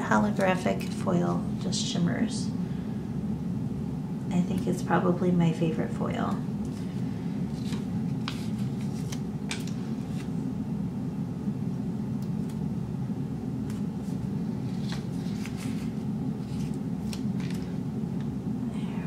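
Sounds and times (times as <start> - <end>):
steady low hum: 0.0 - 19.0
paper rustling: 6.7 - 10.4, 13.7 - 17.8.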